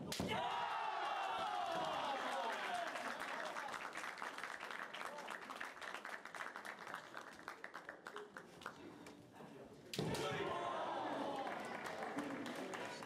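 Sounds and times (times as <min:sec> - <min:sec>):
spectators clapping: 0:00.4 - 0:08.9, 0:10.9 - 0:13.0.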